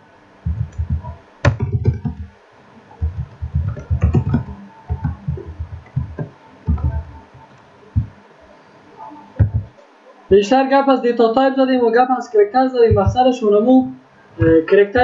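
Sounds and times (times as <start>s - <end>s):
keyboard typing: 0.5s - 2.3s, 3.0s - 8.2s, 9.4s - 9.8s, 12.9s - 13.2s.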